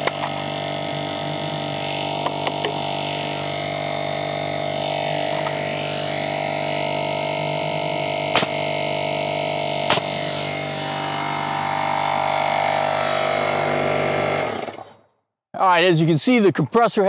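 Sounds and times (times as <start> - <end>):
nail gun firing: 0.0 - 0.4, 8.3 - 8.8, 9.8 - 10.3
air compressor motor running: 0.0 - 15.2.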